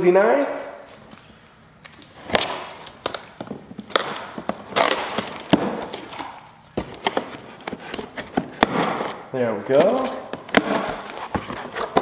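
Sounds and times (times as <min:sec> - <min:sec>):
cardboard flaps scraping and rustling: 0:06.8 - 0:12.0.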